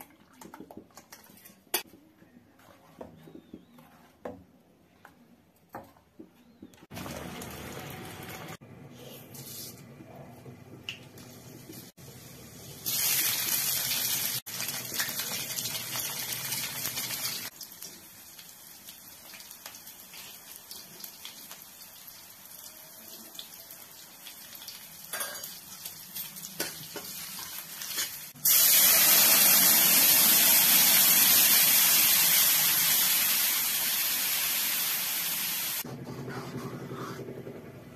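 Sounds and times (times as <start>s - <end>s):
batter hissing in hot oil: 27.9s - 35.8s.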